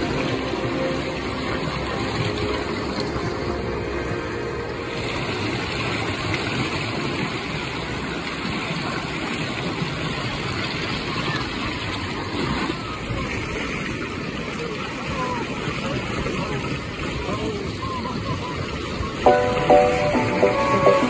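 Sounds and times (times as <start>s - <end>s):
river rapids rushing: 0.0s - 13.4s, 19.2s - 21.0s.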